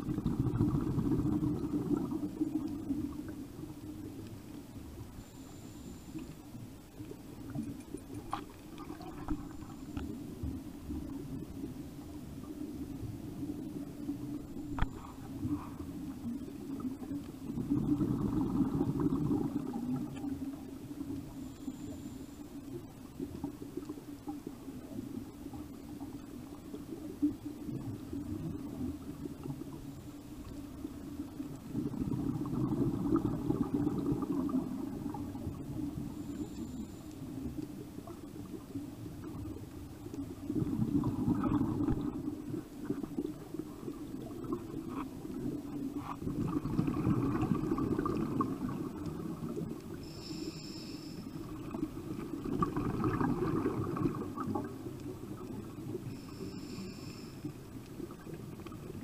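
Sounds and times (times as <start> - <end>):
diver's exhaled bubbles gurgling: 0.0 - 4.2, 7.4 - 21.2, 30.5 - 36.3, 37.4 - 50.0, 51.4 - 56.8
low underwater rumble: 0.0 - 59.0
faint clicks: 3.8 - 12.7, 13.4 - 17.4.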